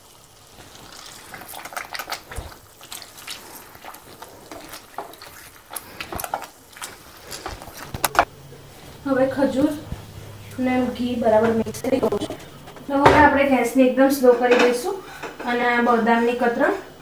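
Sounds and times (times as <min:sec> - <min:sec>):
wet squishing of mashed dates: 0:01.0 - 0:08.3.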